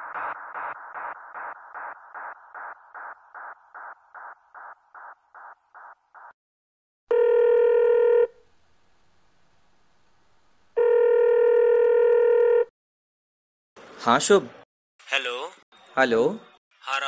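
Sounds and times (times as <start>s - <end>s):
mobile phone ringing: 7.1s - 8.4s, 10.8s - 12.7s.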